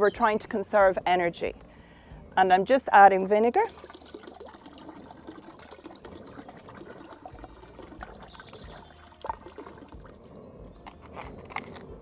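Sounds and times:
liquid trickling into pot of water: 0:03.4 - 0:10.3.

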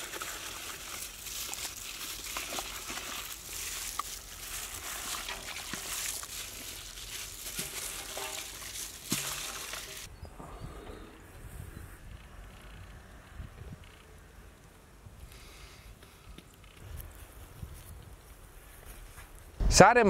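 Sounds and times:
wet squelching and sloshing: 0:00.0 - 0:10.1.

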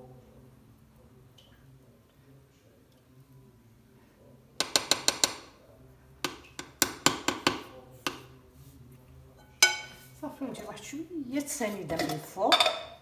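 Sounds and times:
spatula tapping metal pan: 0:04.6 - 0:05.6, 0:06.2 - 0:08.3, 0:09.4 - 0:10.0.

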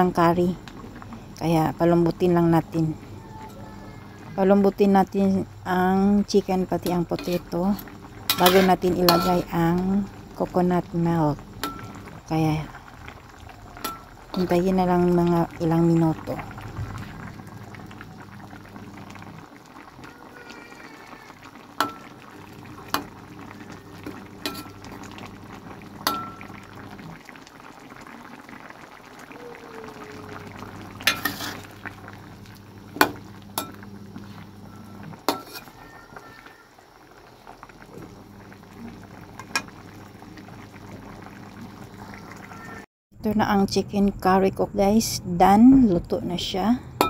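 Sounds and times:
curry bubbling in a wok: 0:00.0 - 0:42.9.

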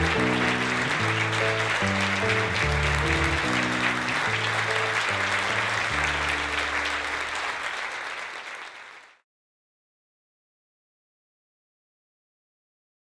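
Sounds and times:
background music with bass notes: 0:00.0 - 0:06.5
audience applauding: 0:00.0 - 0:09.2.

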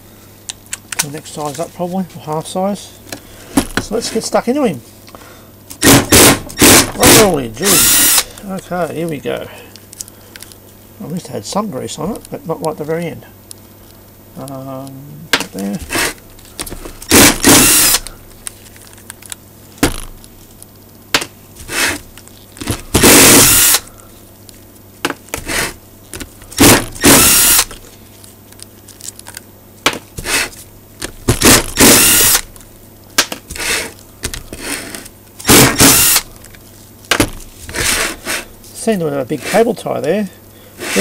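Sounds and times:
cordless driver motor bursts: 0:05.8 - 0:08.4, 0:17.0 - 0:18.1, 0:21.7 - 0:22.0, 0:22.9 - 0:23.9, 0:26.6 - 0:27.8, 0:31.4 - 0:32.5, 0:35.4 - 0:36.3.

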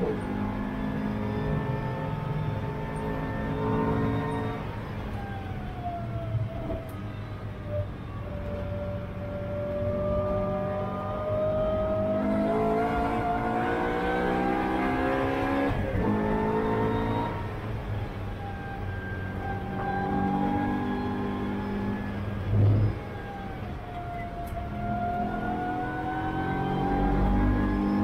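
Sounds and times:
car engine revving: 0:00.0 - 0:05.0, 0:09.3 - 0:17.9, 0:19.4 - 0:23.3, 0:24.8 - 0:28.0.

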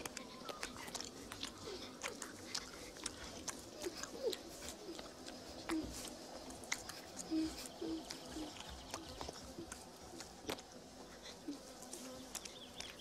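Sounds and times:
wet licking and mouth clicks: 0:00.0 - 0:11.4, 0:12.2 - 0:13.0
bear cub whimpering: 0:00.1 - 0:06.1, 0:06.8 - 0:09.6.

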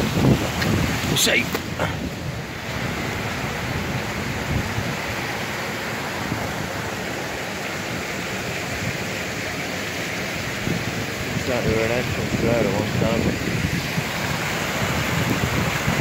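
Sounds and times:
wind blowing on microphone: 0:00.0 - 0:07.1, 0:10.4 - 0:16.0.

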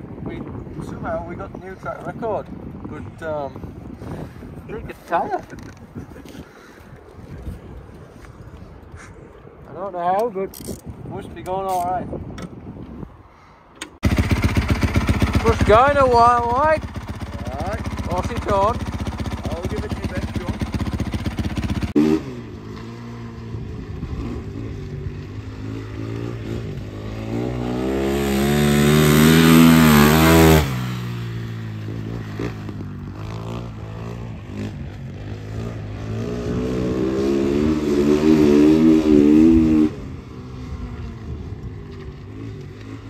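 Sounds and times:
motorcycle engine revving: 0:14.0 - 0:43.0.

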